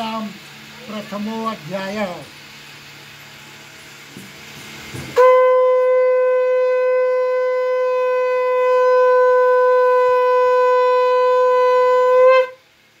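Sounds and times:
conch shell blown: 5.2s - 13.0s.

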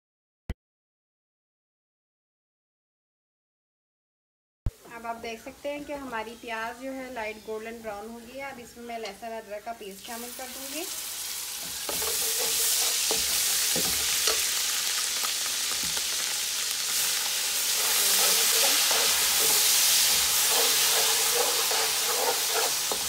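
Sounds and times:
paste sizzling in hot oil: 9.9s - 23.0s
metal spoon scraping pot: 11.6s - 14.5s, 17.7s - 23.0s.

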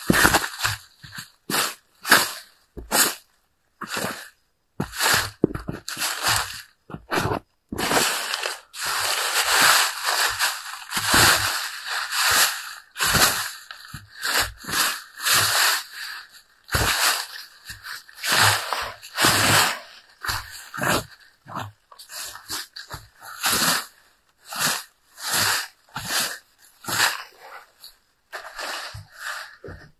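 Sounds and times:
dull footfalls: 0.0s - 3.2s, 4.8s - 15.9s, 16.7s - 23.8s, 28.3s - 29.9s
boots crunching through dry leaves: 4.8s - 21.1s.

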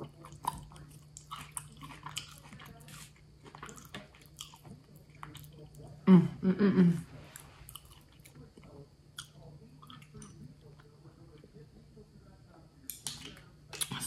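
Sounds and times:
person chewing wetly: 0.0s - 6.0s, 7.4s - 11.0s.

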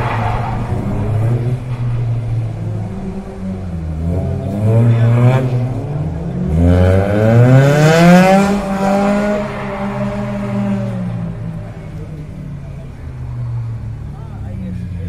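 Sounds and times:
car engine revving hard: 0.0s - 11.8s.

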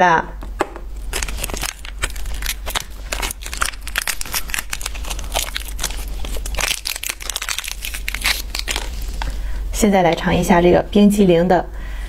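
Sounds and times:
plastic wrapper crinkling: 0.9s - 9.6s.

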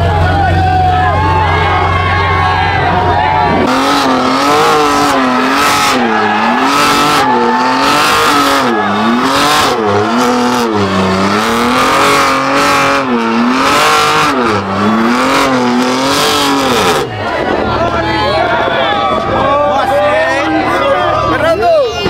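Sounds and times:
tire squeal: 0.0s - 22.0s
car engine revving hard: 1.2s - 18.6s.

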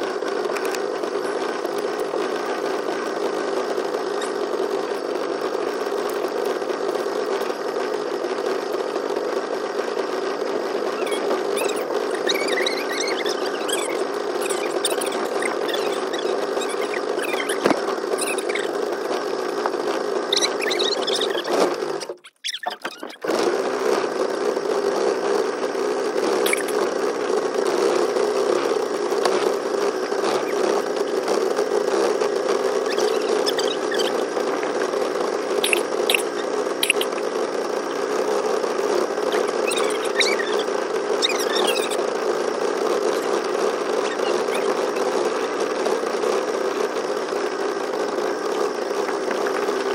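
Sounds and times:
small boat motor buzzing: 0.0s - 49.9s
short high squeaks: 4.0s - 4.6s, 10.8s - 23.7s, 26.3s - 26.9s, 27.9s - 37.3s, 37.9s - 46.2s.

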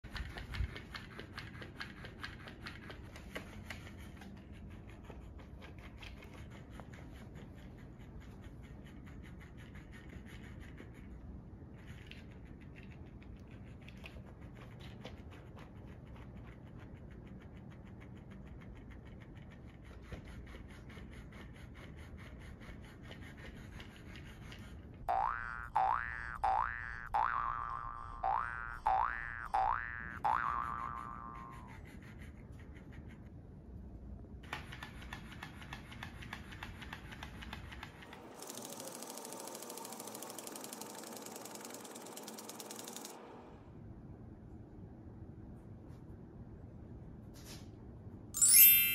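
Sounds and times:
toy motor ticking and rustling: 25.2s - 31.8s, 36.3s - 43.2s.

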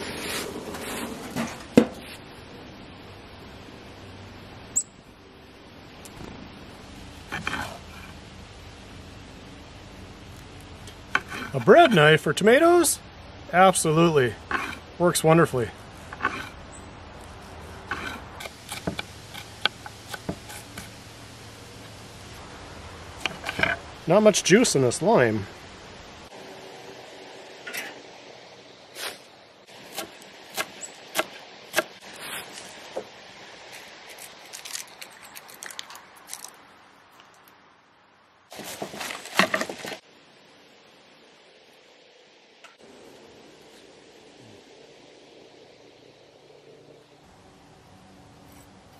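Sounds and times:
knife crunching through pineapple skin: 34.1s - 36.6s.

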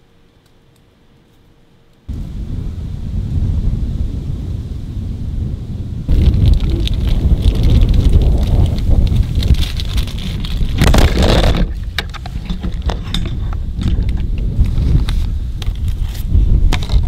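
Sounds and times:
wind buffeting microphone: 2.1s - 17.0s
camera knocked over: 9.4s - 14.2s.

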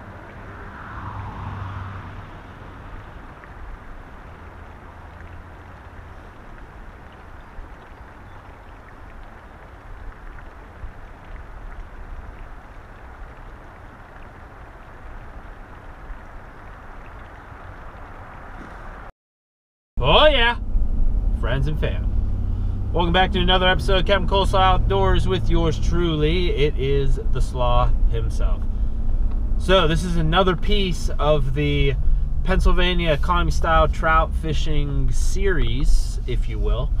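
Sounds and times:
stream flowing: 0.0s - 19.1s
wind rumble on microphone: 0.0s - 19.1s.

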